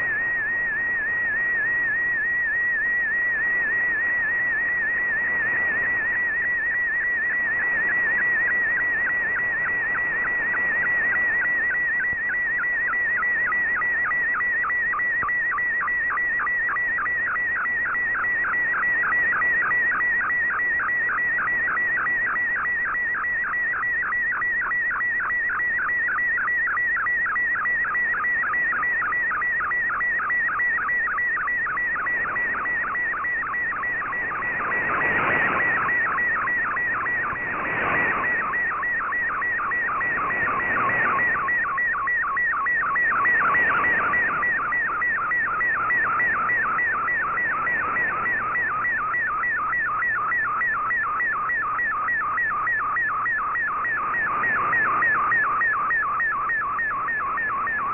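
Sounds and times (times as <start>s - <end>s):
steady data tone with pitch dips: 0.0s - 57.9s
radio band noise hiss: 31.8s - 42.1s, 42.8s - 49.3s.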